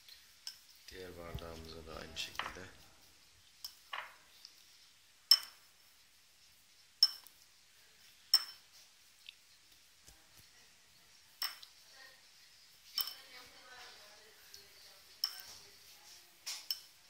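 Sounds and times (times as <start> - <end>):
drinking glass clinking: 5.3 - 5.6, 7.0 - 7.3, 8.3 - 8.7, 11.4 - 11.7, 13.0 - 13.2.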